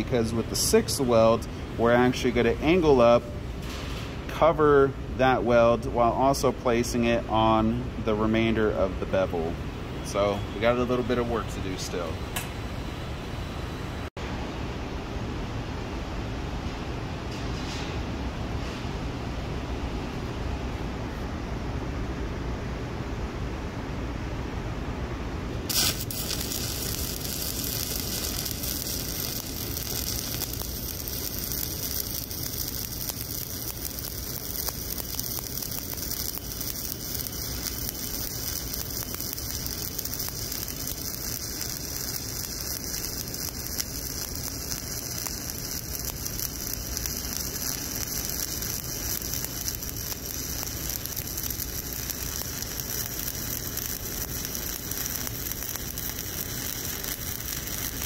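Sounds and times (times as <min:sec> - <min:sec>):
welding arc crackling sizzle: 0:00.0 - 0:14.1, 0:25.7 - 0:58.0.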